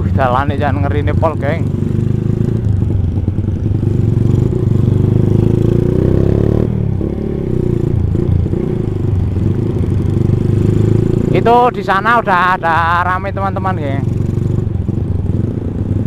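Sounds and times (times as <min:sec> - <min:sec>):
motorcycle engine revving: 0:00.0 - 0:16.0.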